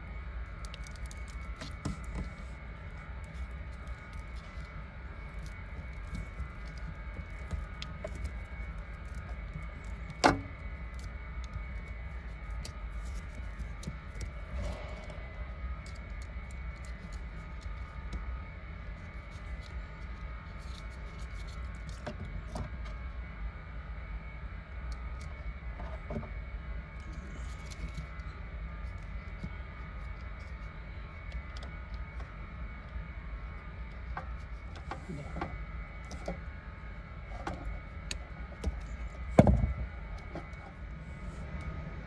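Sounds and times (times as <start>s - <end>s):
faint whine: 0.0s - 42.0s
steady low hum: 0.0s - 42.0s
wires and plastic connector rustling: 0.5s - 14.7s, 18.9s - 22.8s, 27.2s - 28.3s.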